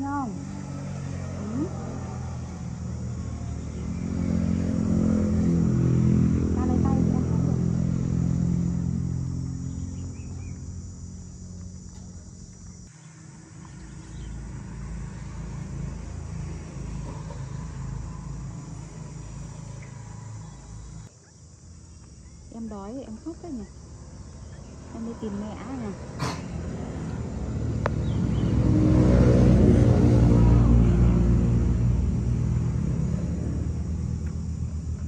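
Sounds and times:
lower rumble: 0.0 - 21.1
passing vehicle engine rumble: 0.0 - 35.0.

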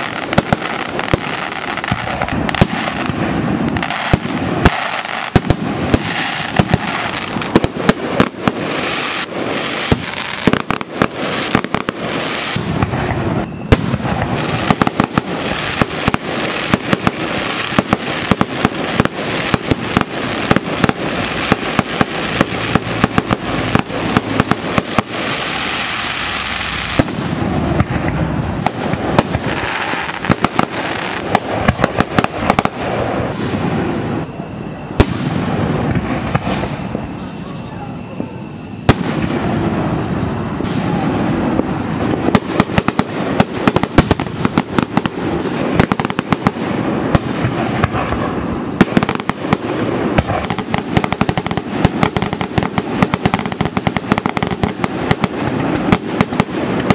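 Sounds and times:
fireworks bangs: 0.0 - 56.9
fireworks crackling: 0.0 - 56.9.

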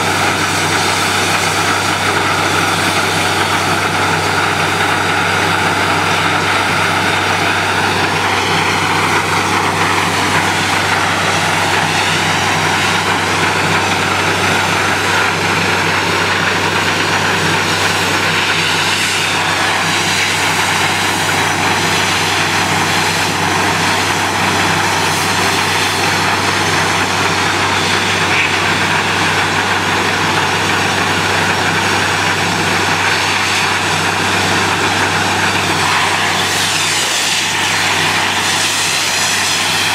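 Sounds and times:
drilling rig engine drone: 0.0 - 39.9
compressor hiss: 32.0 - 39.9.

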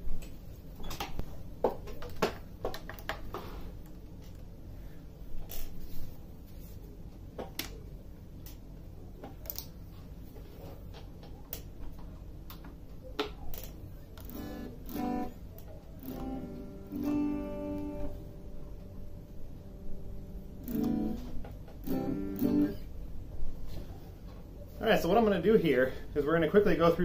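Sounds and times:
electric guitar chords: 14.2 - 22.9
amp knobs clicking: 20.6 - 22.8.

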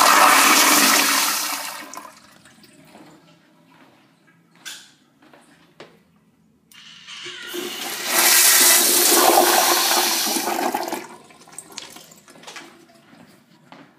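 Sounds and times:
toilet flushing: 0.0 - 2.7, 6.8 - 12.3.

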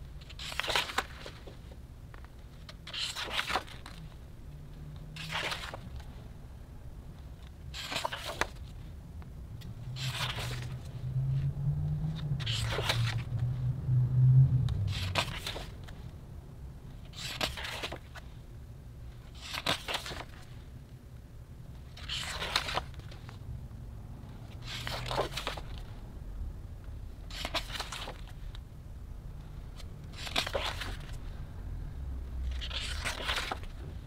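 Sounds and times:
book pages turning: 0.2 - 4.2, 5.2 - 6.2, 7.4 - 8.9, 10.0 - 10.9, 12.1 - 13.5, 14.7 - 16.1, 17.0 - 18.4, 19.2 - 20.6, 21.8 - 23.4, 24.5 - 26.0, 27.2 - 28.6, 29.8 - 31.4, 32.4 - 34.0
low hum: 8.7 - 17.1.

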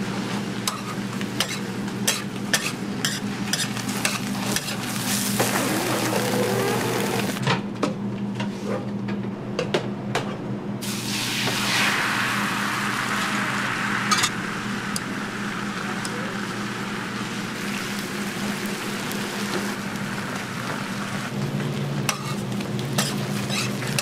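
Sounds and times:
egg sizzling on a griddle: 10.8 - 21.0.

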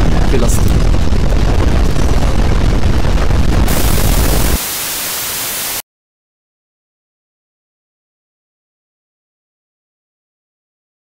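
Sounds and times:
deep earthquake rumble: 0.0 - 4.6
static hiss: 3.7 - 5.8.

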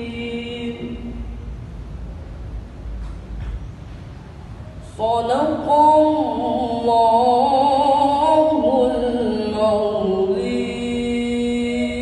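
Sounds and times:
boy reciting melodically: 0.0 - 1.4, 4.8 - 12.0.

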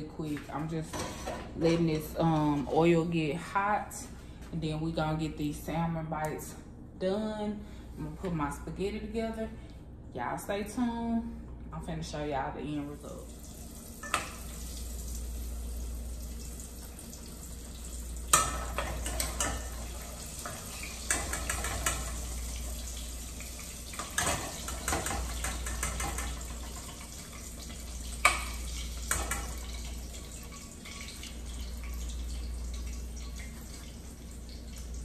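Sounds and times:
oil sizzling: 13.2 - 35.0.

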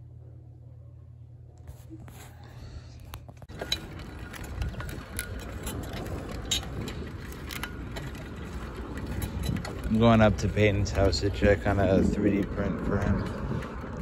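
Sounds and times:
low room hum: 0.0 - 14.0
wind rumbling on microphone: 3.2 - 14.0.

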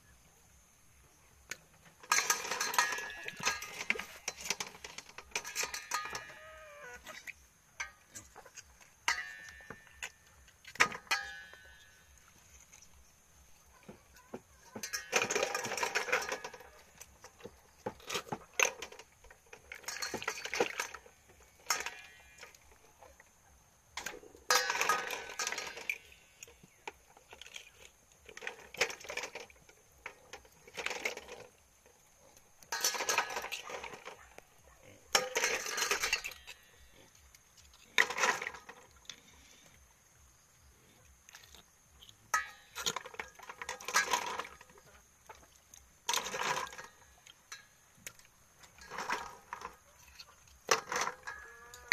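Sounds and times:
metal basin of water: 1.5 - 39.7, 41.3 - 51.9
snail shells and fork clinking: 2.0 - 7.2, 24.0 - 31.5, 35.1 - 39.6.

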